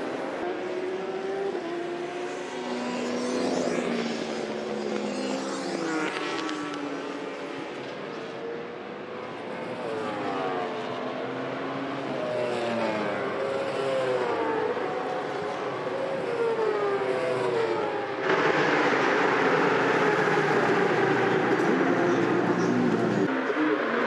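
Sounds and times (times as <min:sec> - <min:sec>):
motorcycle engine revving: 0:16.3 - 0:23.3.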